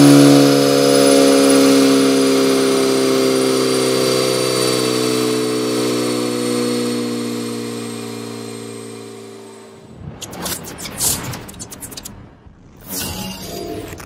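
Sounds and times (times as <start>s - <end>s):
car engine exhaust note: 0.0s - 9.9s.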